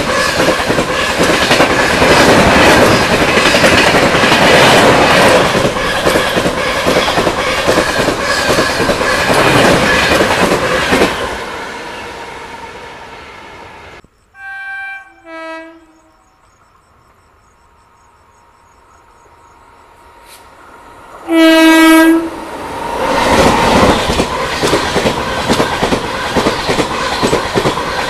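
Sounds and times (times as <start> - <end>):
train wheels clattering over rails: 0.0 - 11.4, 22.9 - 28.0
train horn blasts: 14.3 - 16.2, 21.2 - 22.4.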